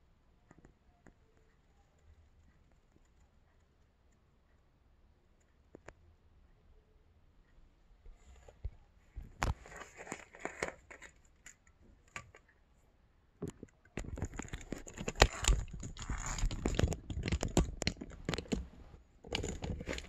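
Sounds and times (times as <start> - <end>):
crinkling rustle with sharp clicks: 9.3 - 12.5, 13.4 - 20.0
camera handling rustles and clicks: 13.5 - 18.6.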